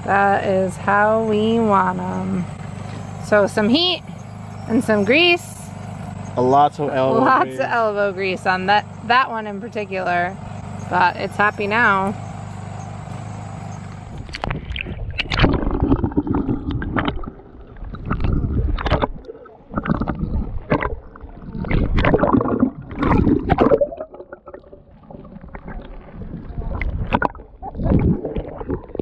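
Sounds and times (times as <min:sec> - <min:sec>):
sea water splashing and gurgling: 0:14.2 - 0:29.0.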